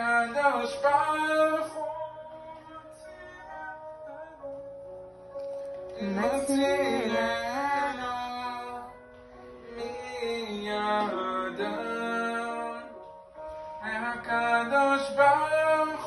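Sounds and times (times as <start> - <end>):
man singing slow melody: 0.0 - 4.9, 5.9 - 16.0.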